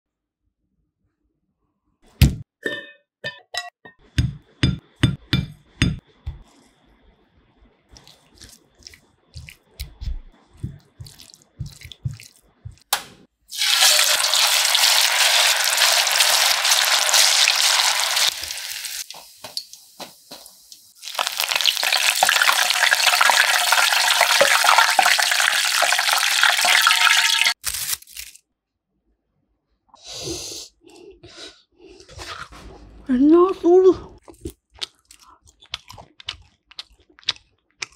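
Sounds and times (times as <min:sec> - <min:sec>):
chicken sizzling in hot oil: 0:13.5 - 0:27.6.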